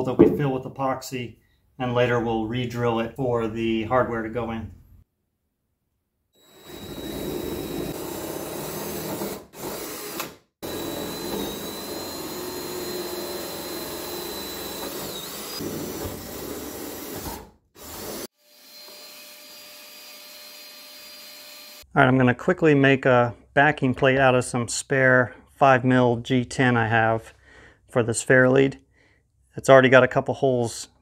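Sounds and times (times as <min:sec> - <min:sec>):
cordless drill whining under load: 0:06.4 - 0:21.8
vacuum cleaner running: 0:06.5 - 0:09.9, 0:10.6 - 0:17.3.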